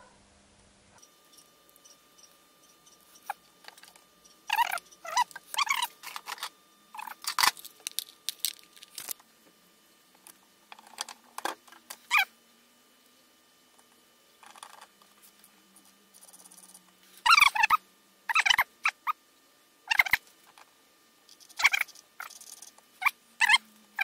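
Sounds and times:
metal parts clinking and scraping: 0:03.2 - 0:09.2.

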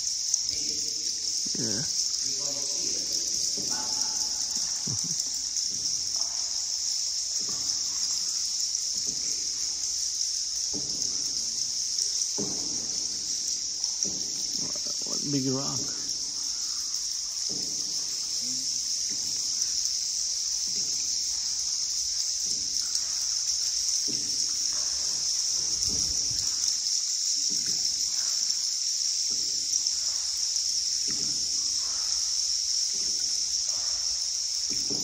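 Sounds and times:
insects droning: 0:00.0 - 0:35.0.

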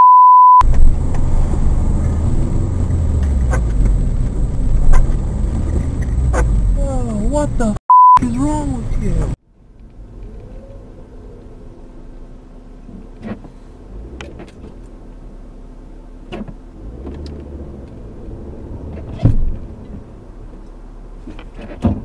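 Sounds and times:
car engine and road rumble: 0:00.0 - 0:22.0
thump: 0:19.0 - 0:19.6, 0:21.3 - 0:22.0.

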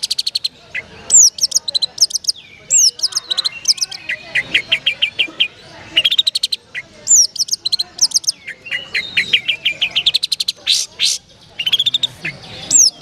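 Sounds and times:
bird singing chips and trills: 0:00.0 - 0:13.0
harsh rasping bird notes: 0:00.0 - 0:13.0.

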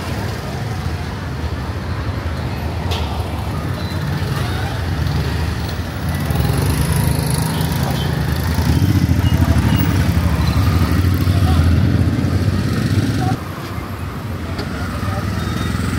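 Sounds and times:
street noise: 0:00.0 - 0:15.9
motorbike engine rumbling: 0:03.6 - 0:13.4.

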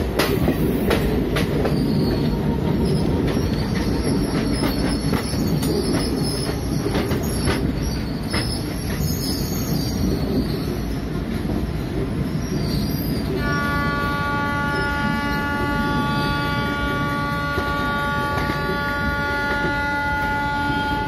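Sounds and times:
moving train running noise: 0:00.0 - 0:21.0
locomotive horn chord: 0:13.4 - 0:21.0.

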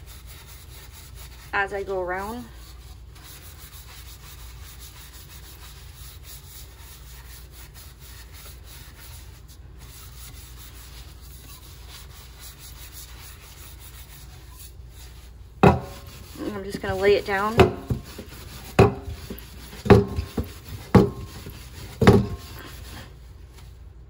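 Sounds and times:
wet rubbing of scrubbing: 0:00.0 - 0:23.8.

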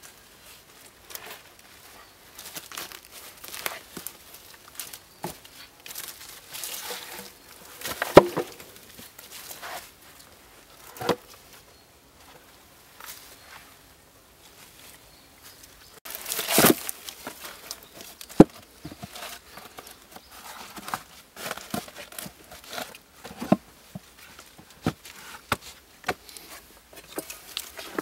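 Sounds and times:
dry leaves rustling and crunching: 0:00.0 - 0:10.2, 0:14.4 - 0:23.5.

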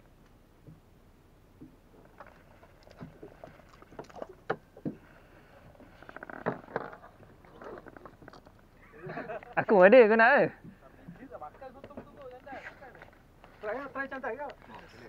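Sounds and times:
knocks and clicks on boat: 0:01.5 - 0:02.3, 0:03.0 - 0:05.1.

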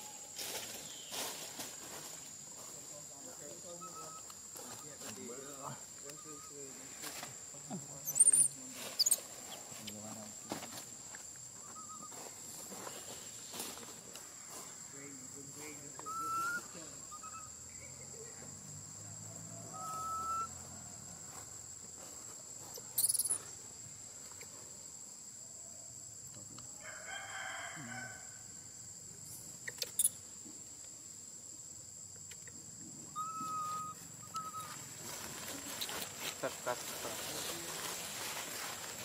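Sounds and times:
high insect whine: 0:00.0 - 0:39.0
whistle-like animal calls: 0:03.7 - 0:04.3, 0:16.0 - 0:17.6, 0:19.7 - 0:20.6, 0:33.1 - 0:34.8
rooster crowing: 0:26.8 - 0:28.6.

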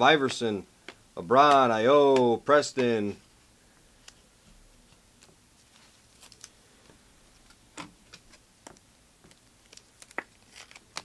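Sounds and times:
trading cards flicked by hand: 0:00.2 - 0:03.2, 0:07.8 - 0:11.0.

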